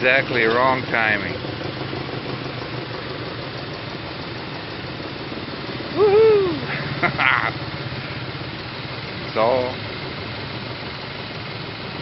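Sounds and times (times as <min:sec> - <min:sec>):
road traffic passing: 0:00.0 - 0:12.0
loud call rising and falling: 0:06.0 - 0:06.7.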